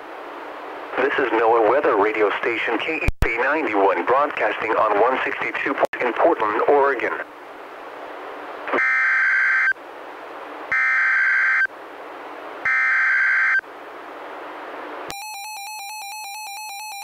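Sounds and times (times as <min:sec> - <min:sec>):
radio hiss: 0:00.9 - 0:07.3
pulsing warning alarm tone: 0:08.7 - 0:09.8, 0:10.7 - 0:11.7, 0:12.6 - 0:13.6, 0:15.1 - 0:17.0.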